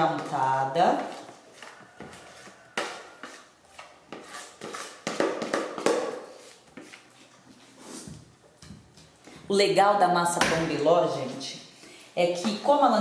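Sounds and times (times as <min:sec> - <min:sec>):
spatula scraping plastic bowl: 0:00.0 - 0:08.2.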